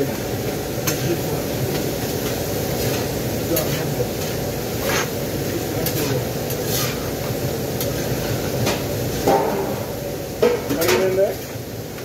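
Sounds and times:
meat sizzling on a griddle: 0.0 - 12.0
metal spatula scraping steel: 5.8 - 7.1.

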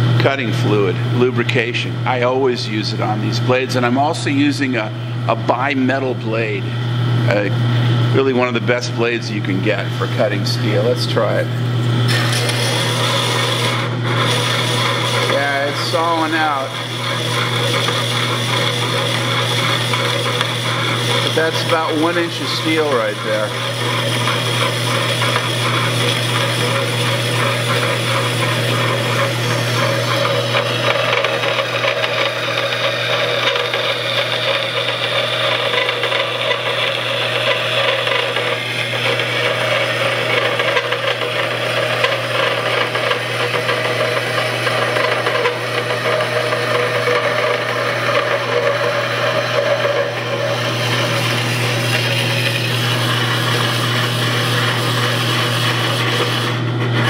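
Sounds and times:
motor hum: 0.0 - 57.0
bandsaw blade rasping through metal: 12.1 - 57.0.

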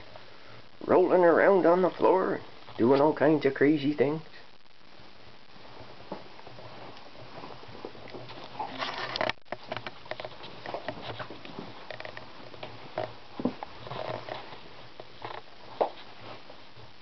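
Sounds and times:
cats chewing catnip on carpet: 5.6 - 17.0.

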